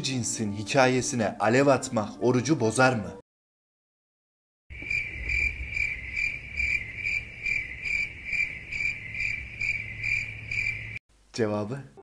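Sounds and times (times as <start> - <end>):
cricket chirping: 4.7 - 11.0.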